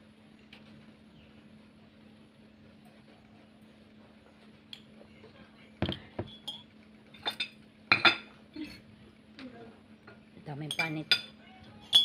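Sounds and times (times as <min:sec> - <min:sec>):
dishes clinking on a plate: 0:05.8 - 0:08.4, 0:10.1 - 0:12.0.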